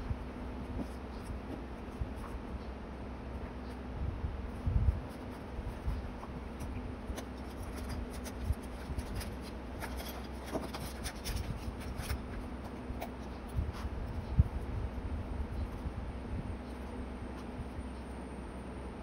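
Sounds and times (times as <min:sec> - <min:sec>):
paper rustling: 0:04.6 - 0:14.2.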